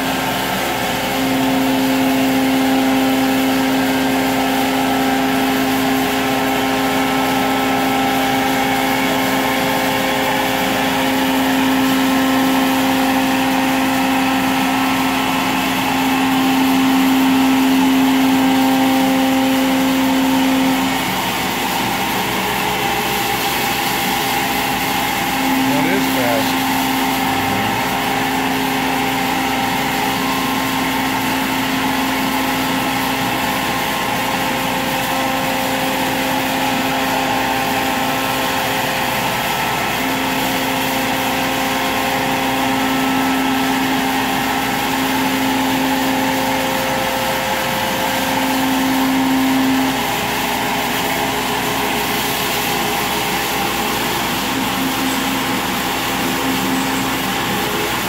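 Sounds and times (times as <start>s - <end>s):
router spindle whining: 0.0s - 58.0s.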